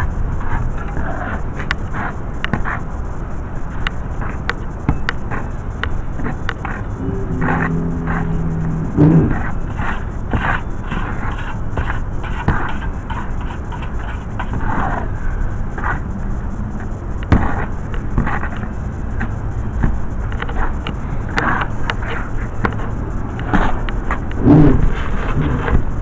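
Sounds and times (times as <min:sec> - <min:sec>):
low rumble: 0:06.8 - 0:10.9.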